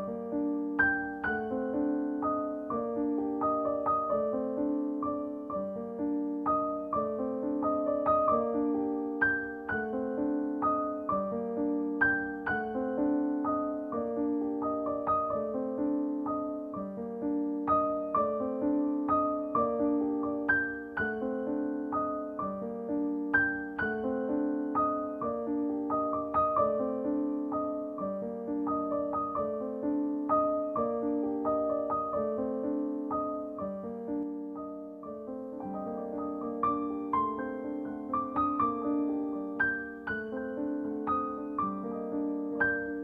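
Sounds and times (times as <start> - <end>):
gentle piano music: 0.0 - 43.0.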